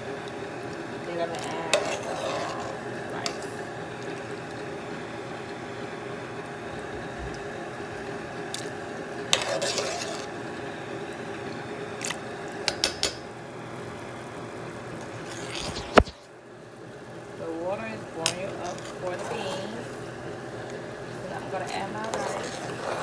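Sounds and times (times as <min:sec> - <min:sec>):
steady background hum: 0:00.0 - 0:23.0
metal spoon scraping a pot: 0:01.6 - 0:03.5, 0:09.3 - 0:10.3, 0:21.6 - 0:23.0.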